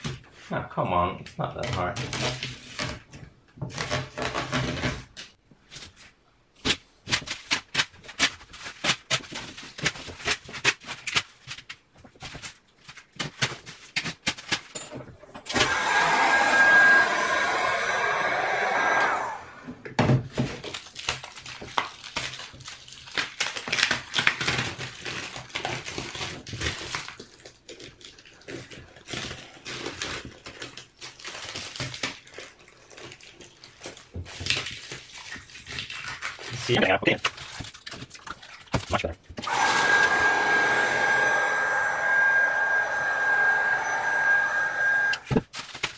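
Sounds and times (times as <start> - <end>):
foil crackling and crinkling: 5.6 - 14.7, 20.3 - 39.0, 45.2 - 45.9
heat gun blowing: 15.5 - 19.7, 39.4 - 45.4.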